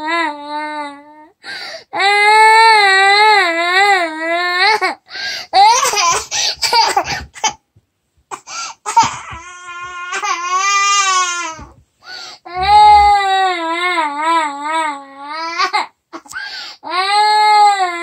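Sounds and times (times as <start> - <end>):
toddler crying: 5.6 - 7.3, 8.8 - 11.8, 12.5 - 15.9.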